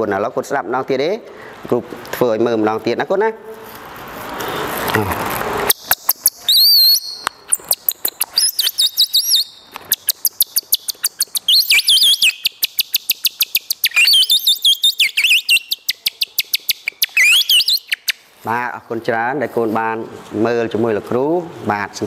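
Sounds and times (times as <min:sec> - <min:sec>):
bird-imitation whistle trills: 0:05.7 - 0:18.2.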